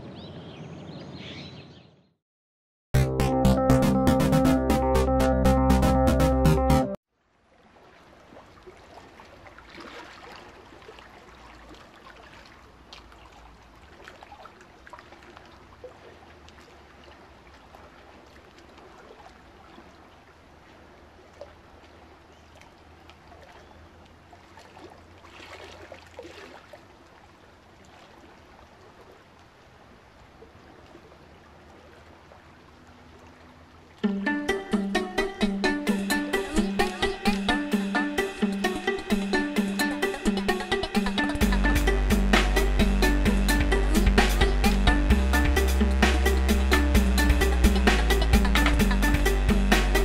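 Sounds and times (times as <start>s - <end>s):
low hum: 41.2s - 50.0s.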